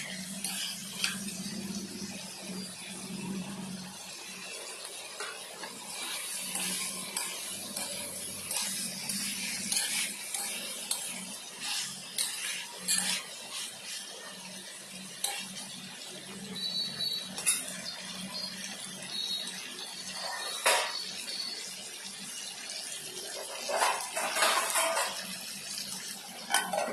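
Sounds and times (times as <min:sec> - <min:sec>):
metal spatula scraping a pan: 0:00.0 - 0:01.5, 0:04.8 - 0:16.0, 0:16.6 - 0:17.9, 0:20.1 - 0:21.0, 0:23.3 - 0:25.3, 0:26.4 - 0:26.9.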